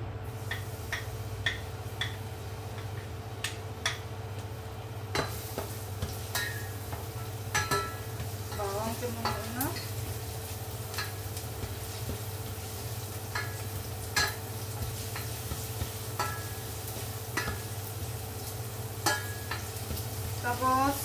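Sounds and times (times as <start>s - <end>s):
garlic sizzling in oil: 0.2s - 21.0s
spatula knocking against pot: 0.5s - 2.2s, 2.8s - 4.1s.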